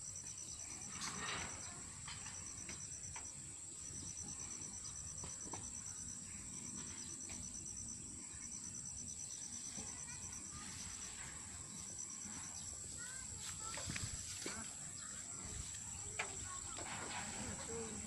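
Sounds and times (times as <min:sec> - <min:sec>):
insect pulsing trill: 0:00.0 - 0:13.4
insects buzzing: 0:00.0 - 0:18.0.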